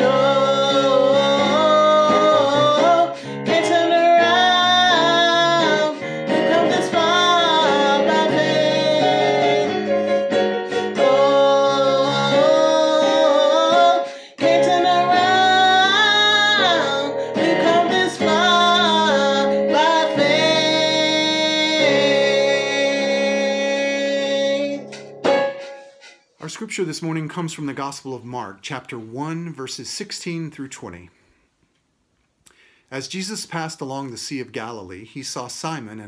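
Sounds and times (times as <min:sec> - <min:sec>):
woman singing: 0:00.0 - 0:25.0
keyboard playing: 0:00.0 - 0:26.4.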